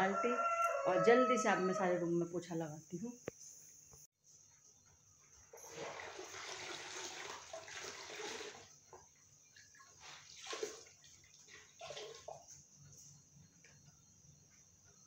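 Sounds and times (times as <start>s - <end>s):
water sloshing in bucket: 5.5s - 12.7s
cloth wrung out splashing: 9.7s - 12.4s.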